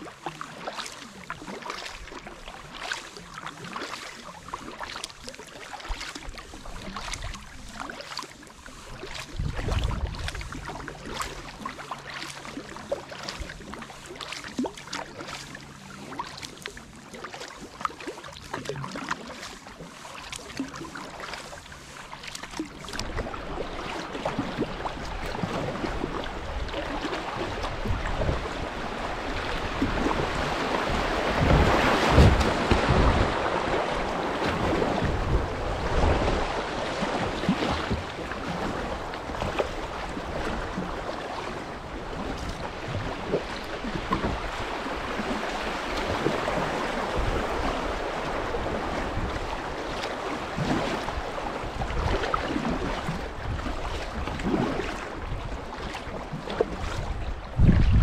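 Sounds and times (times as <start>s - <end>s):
paddle strokes splashing: 0.0s - 58.0s
river water rushing: 26.8s - 49.1s.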